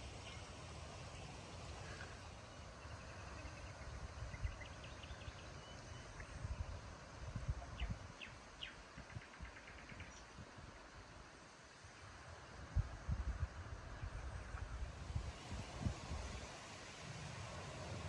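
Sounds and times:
wind gusting over microphone: 0:06.1 - 0:10.7, 0:12.6 - 0:18.0.

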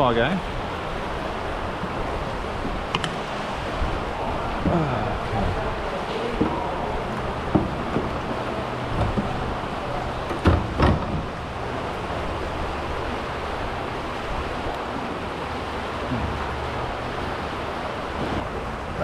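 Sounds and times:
water lapping around a kayak: 0:00.0 - 0:19.0
wind buffeting the microphone: 0:00.0 - 0:19.0
sharp knocks: 0:10.3 - 0:11.3.

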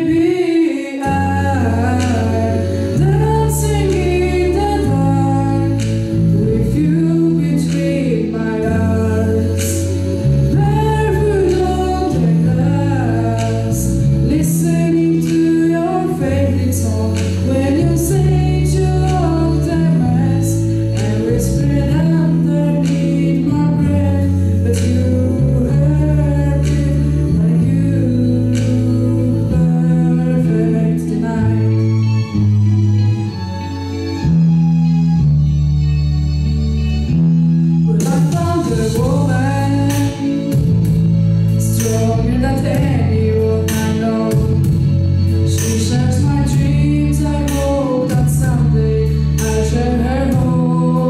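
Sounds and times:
boy singing into microphone: 0:00.0 - 0:31.9, 0:37.9 - 0:40.9, 0:41.6 - 0:51.0
backing music low chords: 0:00.0 - 0:51.0.

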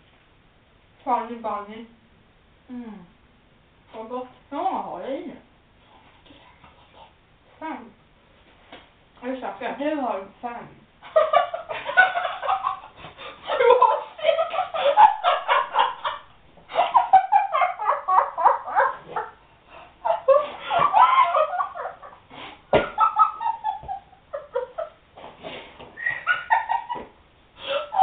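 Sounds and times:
people laughing hard: 0:11.1 - 0:22.2, 0:22.8 - 0:24.9.

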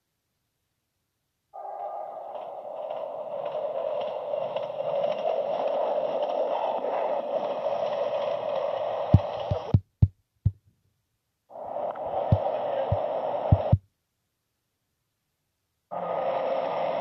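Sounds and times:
train wheels rumbling on rail: 0:02.1 - 0:10.0, 0:11.7 - 0:13.8.

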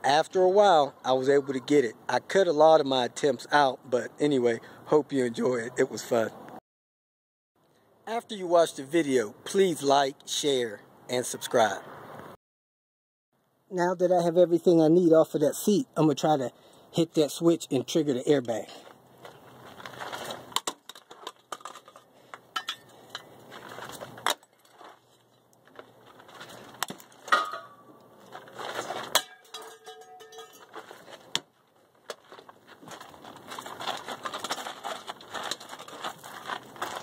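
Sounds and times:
crunching on gravel: 0:17.7 - 0:37.0.

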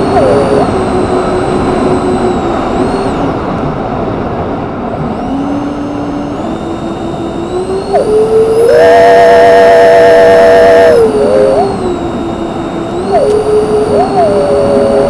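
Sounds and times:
electric ducted fans whining: 0:00.0 - 0:15.0.

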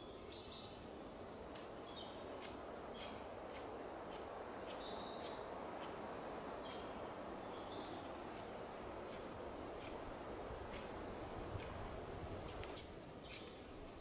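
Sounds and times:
small birds chirping: 0:00.0 - 0:09.2, 0:12.4 - 0:14.0.

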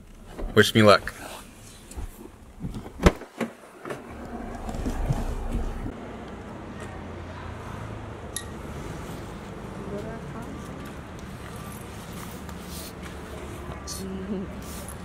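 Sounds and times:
vehicle engine rumbling: 0:03.6 - 0:15.0.

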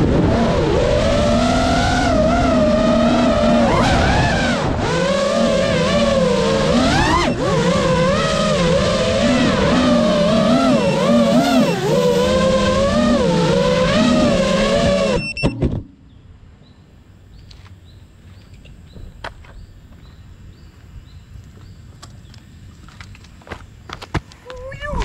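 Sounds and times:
drone motors buzzing: 0:00.0 - 0:15.8.

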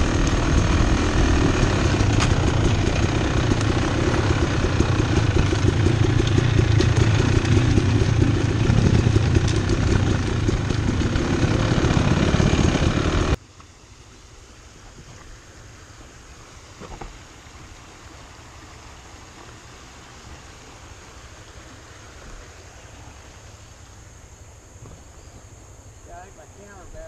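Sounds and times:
dirt bike engine running: 0:00.0 - 0:13.4.

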